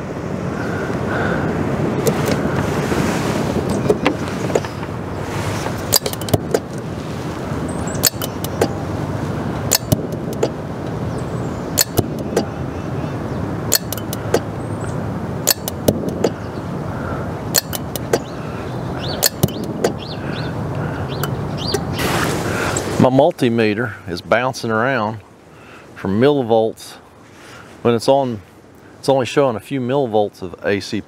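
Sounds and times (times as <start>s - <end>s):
refrigerator relays clicking: 5.9s - 6.8s, 8.0s - 8.8s, 9.7s - 10.5s, 11.8s - 12.4s, 13.7s - 14.5s, 15.5s - 16.4s, 17.5s - 18.3s, 19.2s - 20.0s.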